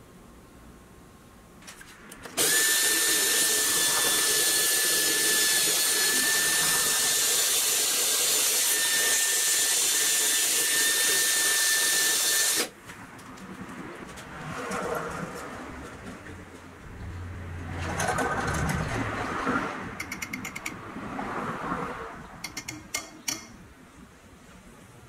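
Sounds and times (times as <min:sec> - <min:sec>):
cordless drill whining: 0:02.4 - 0:12.8.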